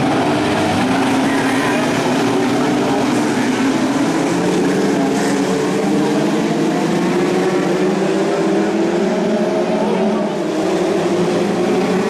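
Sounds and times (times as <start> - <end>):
racing car engines: 0.0 - 12.0.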